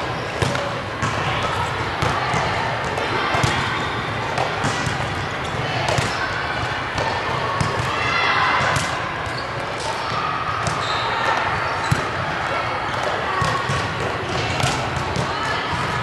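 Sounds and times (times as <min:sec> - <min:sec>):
busy gym noise: 0:00.0 - 0:16.0
volleyball hits: 0:00.3 - 0:06.3, 0:06.9 - 0:12.3, 0:12.9 - 0:16.0.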